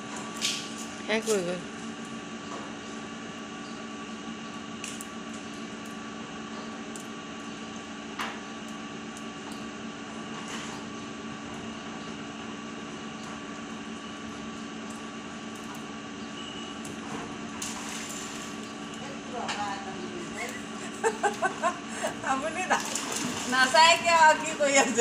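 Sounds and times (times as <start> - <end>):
steady tonal hum: 11.1 - 25.0.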